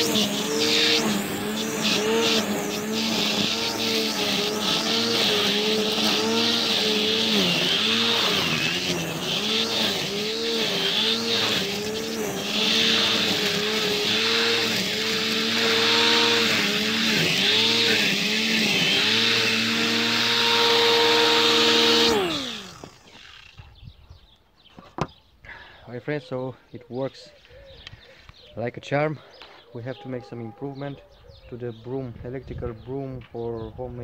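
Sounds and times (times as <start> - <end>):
grass trimmer whining in grass: 0.0 - 23.7.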